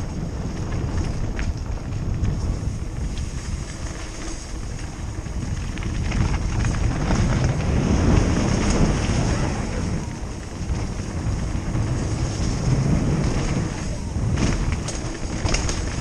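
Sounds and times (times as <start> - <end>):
bike rattling over bumps: 0.0 - 16.0
bike tyres on dirt trail: 0.0 - 16.0
wind buffeting microphone: 0.0 - 16.0.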